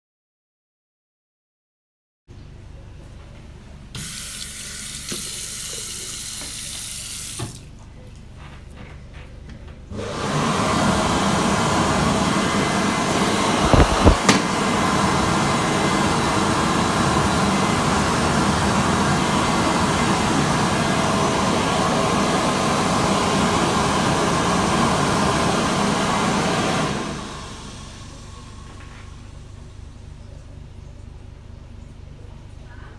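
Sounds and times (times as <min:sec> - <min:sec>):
hand dryer blowing: 0:09.9 - 0:28.6
low thumps: 0:13.6 - 0:14.4.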